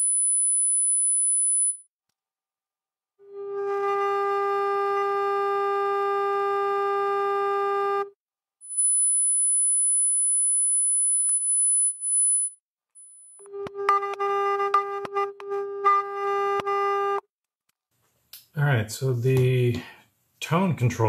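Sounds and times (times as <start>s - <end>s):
high piercing tone: 0.0s - 1.8s, 8.6s - 14.0s
click: 11.2s - 11.5s.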